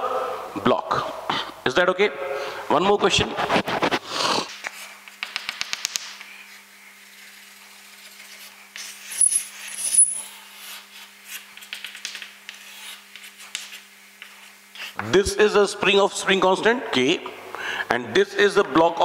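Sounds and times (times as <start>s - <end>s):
chalk scratching on chalkboard: 6.3s - 15.0s.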